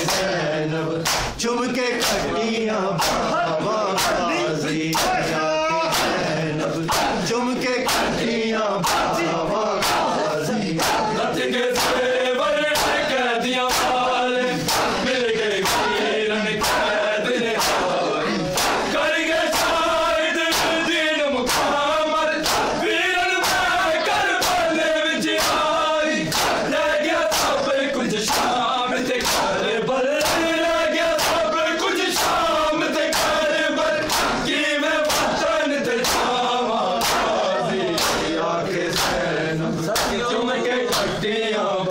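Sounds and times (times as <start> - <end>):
men slapping bare chests: 0.0 - 2.4, 3.0 - 29.6, 30.2 - 39.3, 39.9 - 40.3, 40.9 - 41.2
male voices chanting lament: 0.0 - 41.9.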